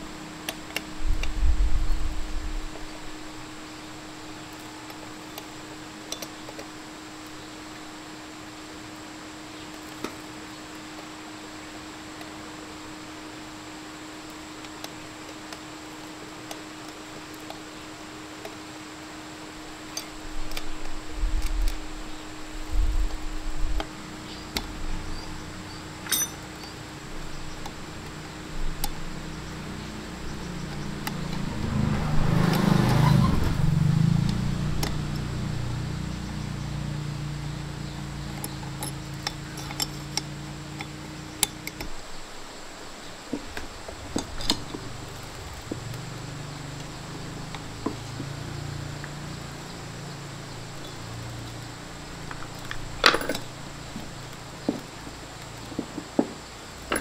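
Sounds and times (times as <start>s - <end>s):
low steady hum: 0.0s - 57.0s
metal tools clinking: 26.0s - 26.8s, 38.3s - 41.8s, 52.3s - 53.6s.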